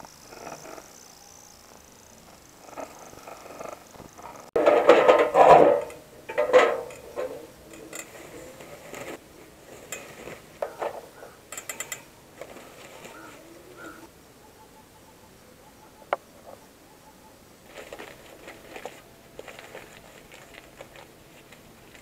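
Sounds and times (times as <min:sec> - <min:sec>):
charcoal clattering on metal grill: 0:04.6 - 0:13.4.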